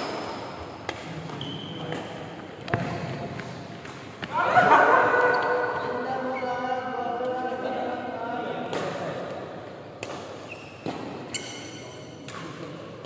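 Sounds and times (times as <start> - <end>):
racket hitting shuttlecock: 0.0 - 4.6, 8.6 - 12.9
shoe squeak: 1.4 - 1.9, 10.4 - 12.1.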